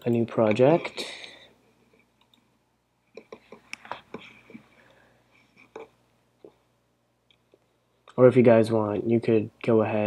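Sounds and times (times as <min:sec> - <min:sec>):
computer mouse clicks: 0:02.2 - 0:02.5.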